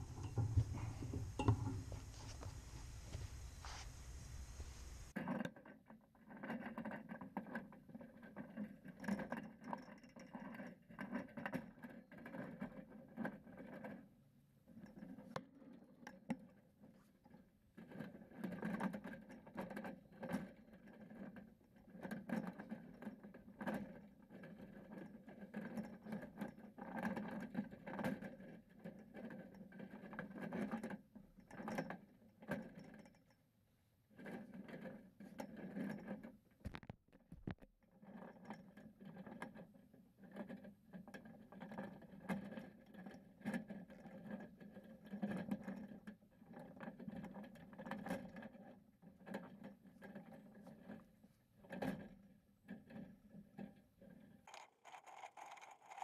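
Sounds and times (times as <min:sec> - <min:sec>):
wire mesh clicking and scraping: 0:52.7 - 0:56.0.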